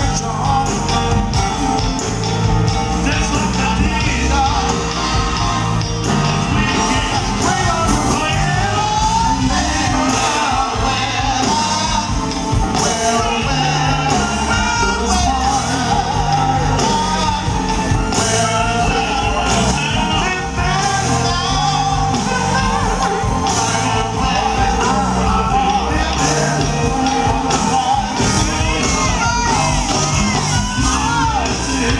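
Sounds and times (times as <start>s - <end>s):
backing singers: 0.0s - 31.9s
live soul band performance: 0.0s - 31.9s
male lead vocals: 0.0s - 31.9s.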